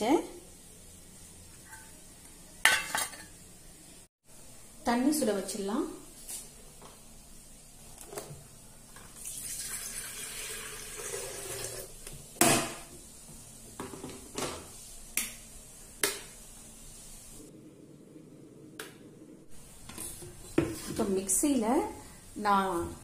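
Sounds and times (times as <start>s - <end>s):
water running into kettle: 9.0s - 12.1s.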